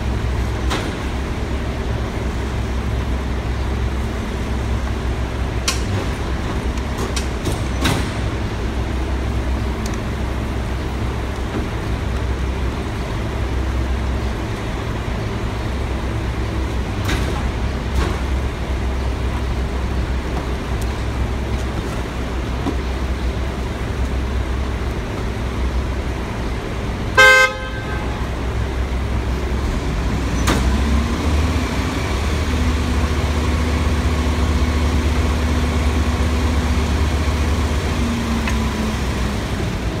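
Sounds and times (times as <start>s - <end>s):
diesel engine idling: 0.0s - 40.0s
car horn honk: 27.1s - 28.4s.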